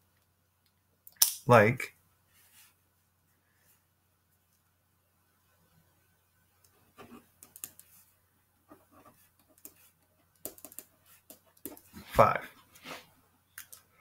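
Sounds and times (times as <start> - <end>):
pen scratching on paper: 7.0 - 8.1, 8.7 - 12.0.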